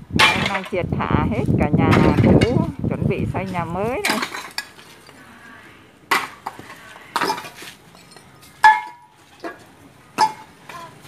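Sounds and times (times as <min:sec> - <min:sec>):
hard objects clinking: 0:06.1 - 0:11.0.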